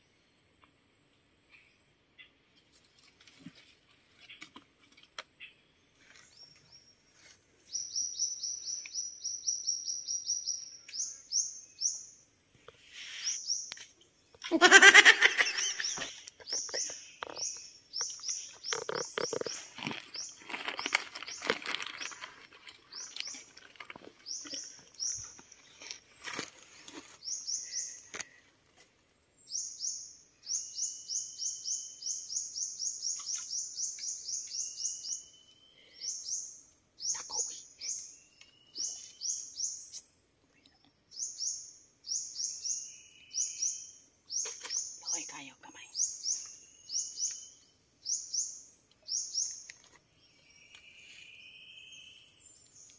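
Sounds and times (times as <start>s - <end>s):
rustling: 18.5s - 27.3s.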